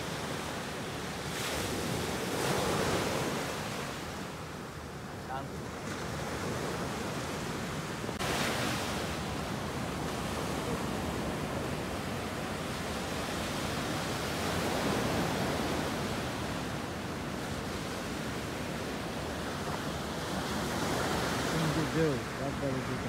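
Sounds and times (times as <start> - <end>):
sea waves washing onto shore: 0.0 - 23.0.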